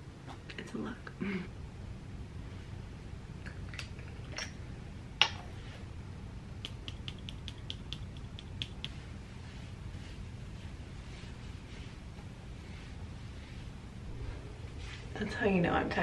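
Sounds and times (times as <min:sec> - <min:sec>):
low room hum: 0:00.0 - 0:16.0
wet clicks of hands rubbing: 0:06.6 - 0:09.1.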